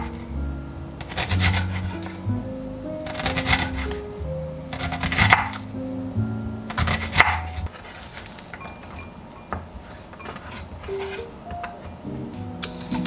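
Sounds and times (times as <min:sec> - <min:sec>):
soft background music: 0:00.0 - 0:13.0
knife slicing onion on wooden board: 0:01.0 - 0:02.2, 0:03.1 - 0:03.9, 0:04.7 - 0:05.6, 0:06.7 - 0:08.4.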